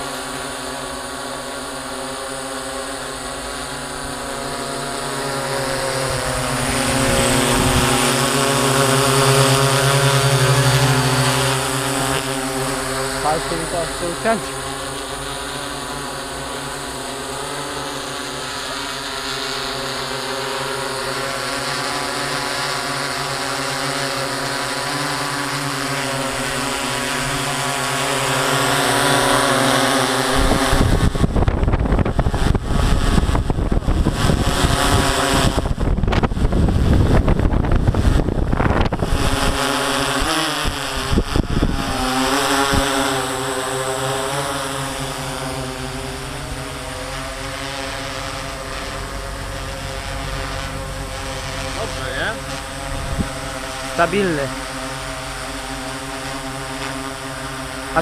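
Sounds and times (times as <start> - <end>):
drone motors humming: 0.0 - 58.0
wind buffeting microphone: 6.5 - 8.1, 30.3 - 39.6, 40.2 - 43.0, 52.8 - 53.5.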